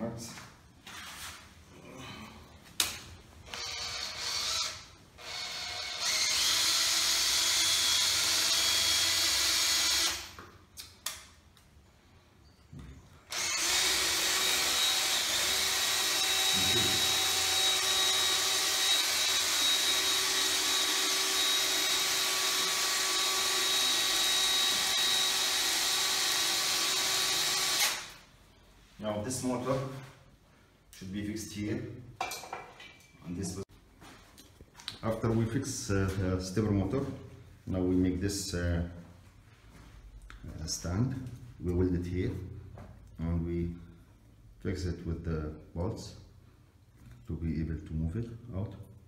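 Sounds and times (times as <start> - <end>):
electric drill running: 3.5 - 10.4, 13.3 - 28.2.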